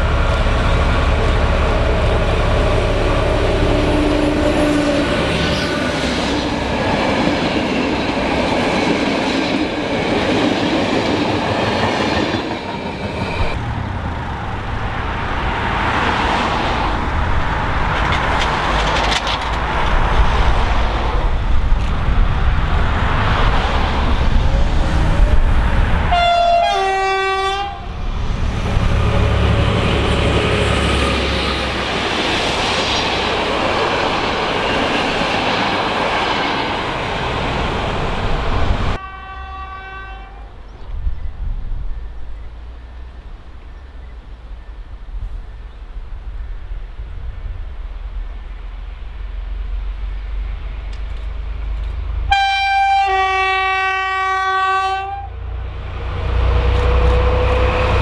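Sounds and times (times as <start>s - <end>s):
train rumbling on rails: 0.0s - 58.0s
two-note locomotive horn: 26.1s - 27.9s, 39.0s - 40.5s, 52.3s - 55.4s.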